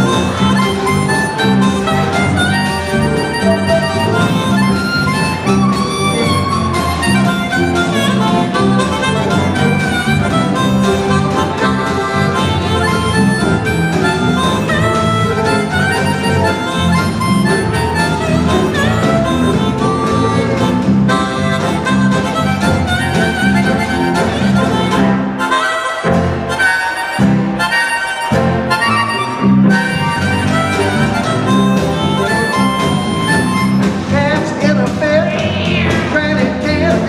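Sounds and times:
strummed acoustic guitar: 0.0s - 27.6s
bass: 0.0s - 37.0s
blues harmonica: 0.0s - 37.0s
electric guitar: 0.0s - 37.0s.

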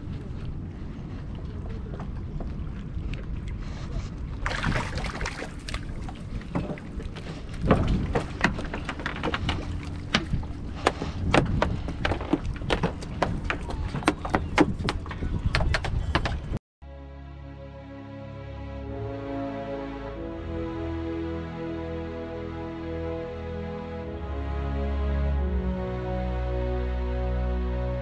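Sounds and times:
wind rumbling on microphone: 0.0s - 16.6s.

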